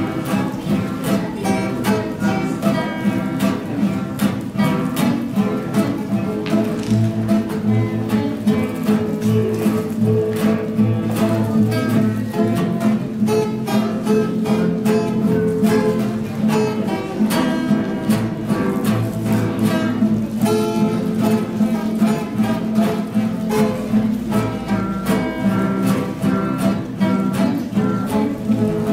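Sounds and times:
acoustic guitars strumming and plucking: 0.0 - 28.9.

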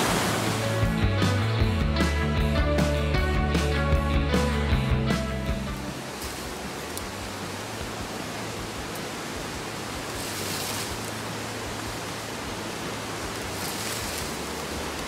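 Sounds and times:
stream rushing over rocks: 0.0 - 1.1, 5.2 - 15.0.

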